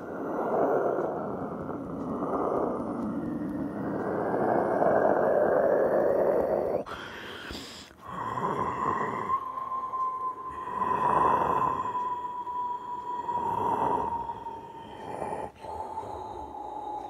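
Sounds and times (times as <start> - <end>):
steady high tone: 8.0 - 15.5.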